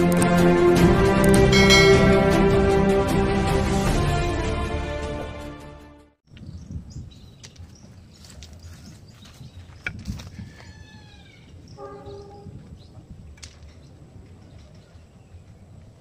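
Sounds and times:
intro music: 0.0 - 6.1
bird calls: 6.3 - 13.0
outdoor ambience: 6.3 - 16.0.

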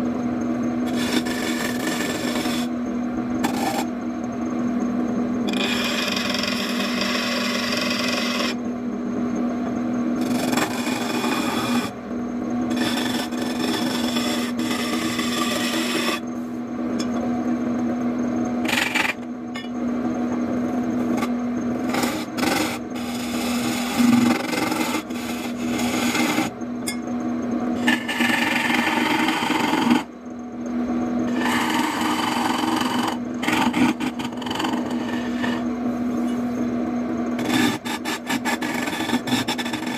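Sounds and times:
chisel scraping spinning wood: 0.0 - 8.7, 9.7 - 17.2, 18.4 - 26.6, 27.7 - 30.2, 31.2 - 36.7, 37.3 - 39.9
wood lathe humming: 0.0 - 8.7, 9.6 - 26.7, 27.6 - 39.9.

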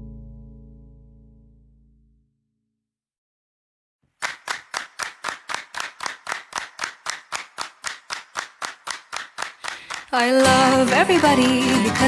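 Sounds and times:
rhythmic hand claps: 4.2 - 12.0.

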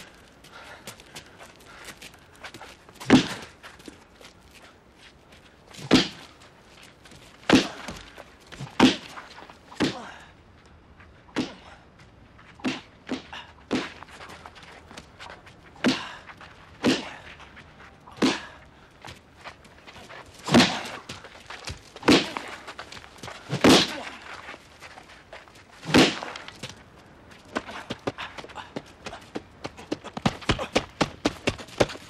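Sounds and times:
heavy punch impacts: 3.0 - 3.5, 5.8 - 6.3, 7.4 - 9.2, 20.5 - 21.0, 22.0 - 22.6, 23.4 - 24.2, 25.8 - 26.4.

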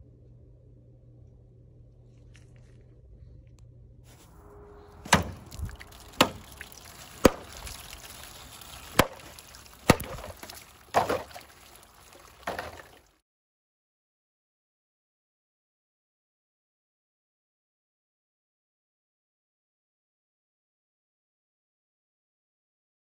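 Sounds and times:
water splashing: 4.9 - 13.2
dagger chopping plastic jug: 5.1 - 5.4, 6.1 - 6.5, 7.1 - 8.1, 8.7 - 11.6, 12.3 - 13.0.

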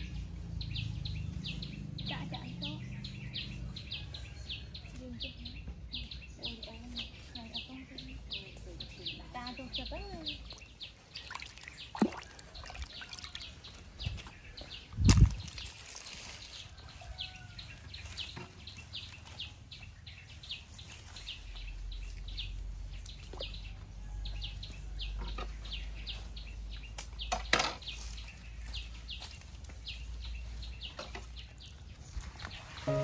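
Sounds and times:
bird chirping: 24.8 - 33.0.

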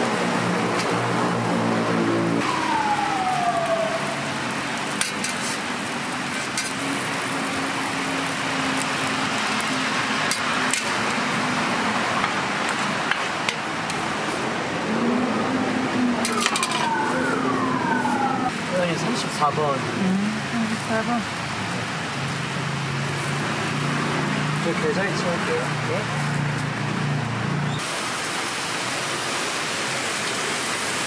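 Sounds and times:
food sizzling on a griddle: 4.0 - 14.4, 27.8 - 31.0
metal spatula scraping: 5.0 - 5.6
falling tone: 14.8 - 18.6.

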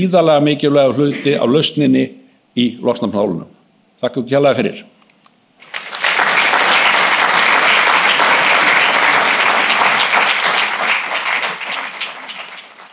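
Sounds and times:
audience applauding: 5.6 - 12.9.

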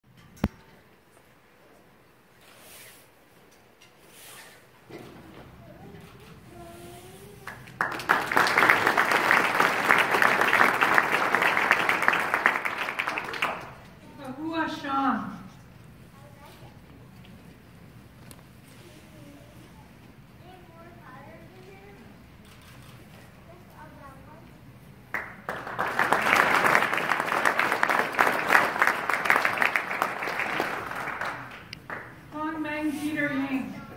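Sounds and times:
audience applauding: 7.4 - 13.9, 25.1 - 32.3.

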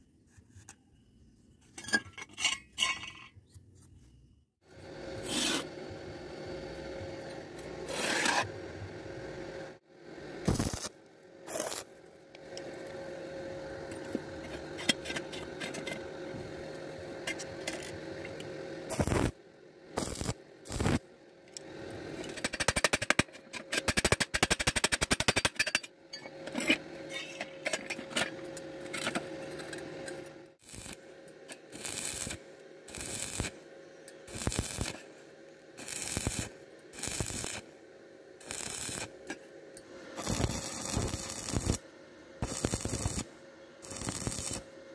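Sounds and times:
welding arc crackling and hissing: 10.4 - 19.4, 20.0 - 25.6, 30.6 - 33.6, 34.2 - 37.8, 38.4 - 39.4, 40.0 - 41.8, 42.4 - 44.7.

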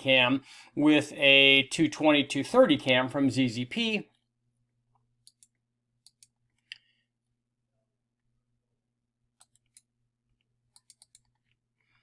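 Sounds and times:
computer mouse clicks: 5.2 - 6.9, 9.4 - 9.9, 10.7 - 11.6.

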